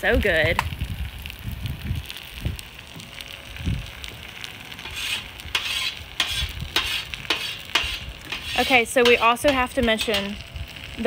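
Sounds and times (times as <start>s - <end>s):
potatoes sizzling on a griddle: 0.0s - 11.0s
metal spatula scraping griddle: 4.8s - 10.4s.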